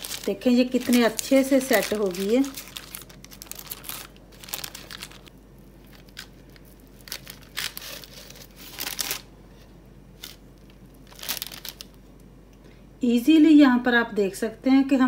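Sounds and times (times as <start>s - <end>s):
paper crinkling: 0.0s - 9.3s, 10.2s - 12.0s
knife scraping on baking paper: 7.5s - 9.2s.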